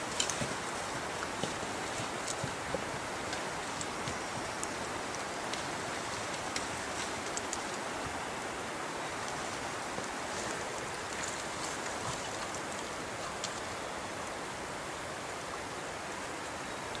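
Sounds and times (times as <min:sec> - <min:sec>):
faint ticks: 0:00.0 - 0:08.2, 0:10.0 - 0:13.8
steady outdoor hiss: 0:00.0 - 0:17.0.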